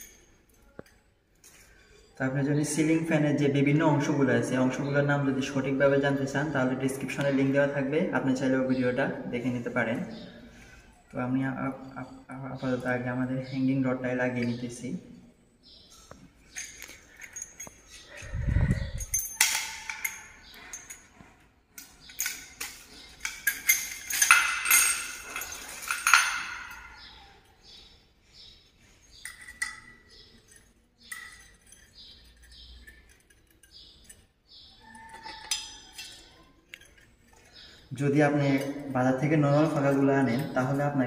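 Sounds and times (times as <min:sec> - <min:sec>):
light clinks of metal fittings: 0:15.9 - 0:27.8, 0:29.1 - 0:37.9
rustling and scraping: 0:15.9 - 0:37.8.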